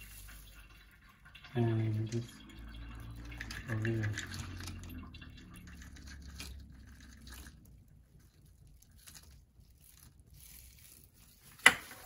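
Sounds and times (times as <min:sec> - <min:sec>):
crumbs tapping and rustling: 0:00.0 - 0:01.2, 0:05.7 - 0:12.0.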